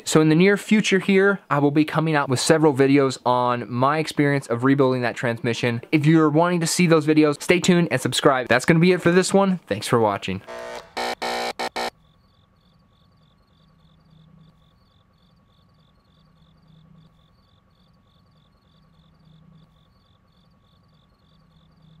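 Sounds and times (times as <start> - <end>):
insect chirping: 11.9 - 22.0.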